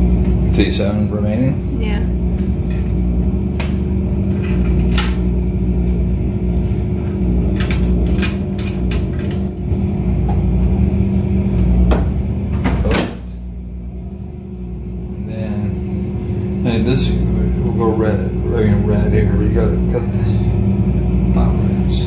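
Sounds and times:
low machine hum: 0:00.0 - 0:22.0
coin mechanism clicks and clunks: 0:07.5 - 0:09.6.

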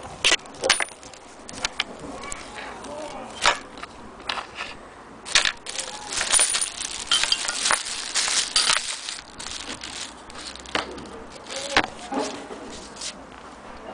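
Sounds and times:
plastic bag crinkling: 0:05.3 - 0:12.1.

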